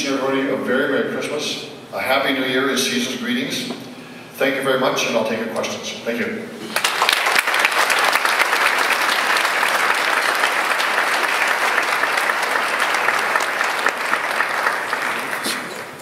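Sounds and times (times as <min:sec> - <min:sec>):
audience applauding: 0:06.7 - 0:16.0.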